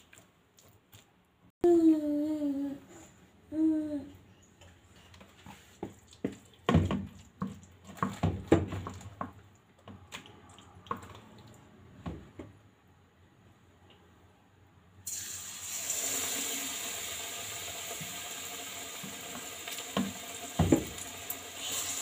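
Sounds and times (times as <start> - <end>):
person humming: 1.6 - 4.2.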